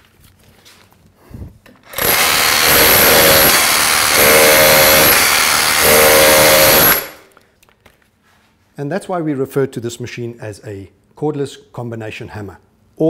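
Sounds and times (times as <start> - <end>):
rotary hammer chiselling stone: 1.9 - 7.3.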